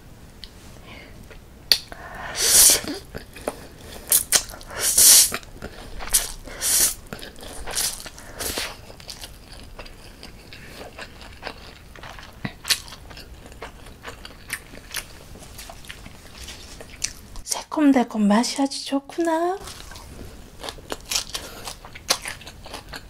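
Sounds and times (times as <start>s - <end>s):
wet chewing: 1.3s - 17.4s, 19.6s - 23.0s
noodle slurping: 2.0s - 9.1s.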